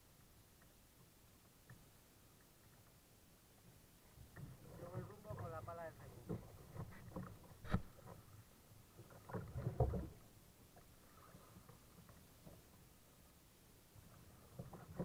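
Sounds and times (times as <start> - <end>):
faint water and hull noise: 0.0 - 15.0
kayak hull knocks and thuds: 3.6 - 13.0, 14.0 - 15.0.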